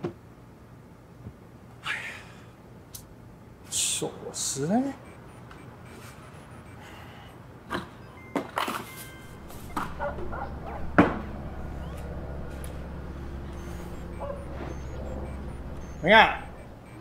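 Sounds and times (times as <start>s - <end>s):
low steady hum: 5.0s - 17.0s.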